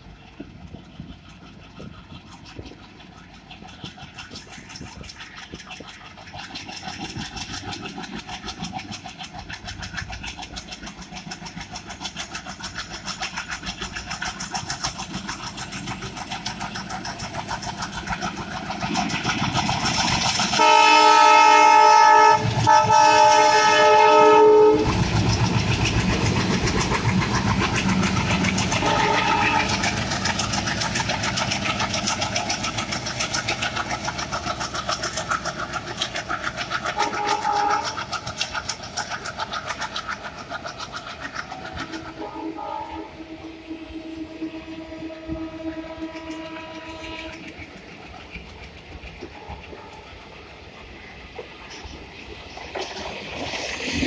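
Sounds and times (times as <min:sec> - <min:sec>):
wheels clattering over rail joints: 0:00.0 - 0:43.5, 0:44.2 - 0:54.0
diesel locomotive engine: 0:00.0 - 0:54.0
locomotive horn blast: 0:20.6 - 0:25.0, 0:28.8 - 0:29.9, 0:37.0 - 0:38.0, 0:42.0 - 0:47.4.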